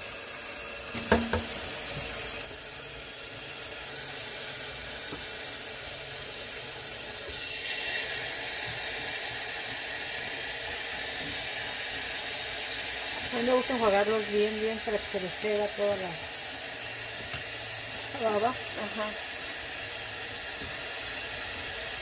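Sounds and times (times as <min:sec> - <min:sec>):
colander knocking: 0:00.9 - 0:01.6
tap water running into sink: 0:00.9 - 0:02.3, 0:07.2 - 0:14.9, 0:19.2 - 0:22.0.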